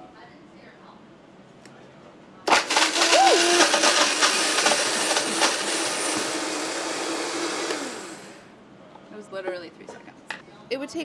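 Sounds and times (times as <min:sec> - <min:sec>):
blender grinding: 0:02.5 - 0:08.5.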